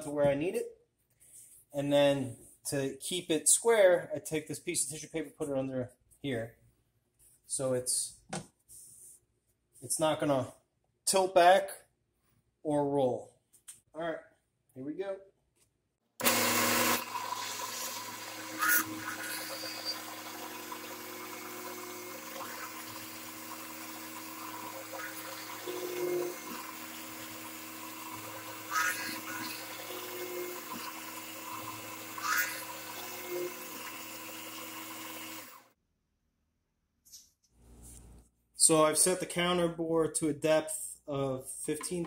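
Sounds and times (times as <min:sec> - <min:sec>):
drill bit cutting wood: 0:16.2 - 0:35.7
drill press motor hum: 0:16.2 - 0:35.7.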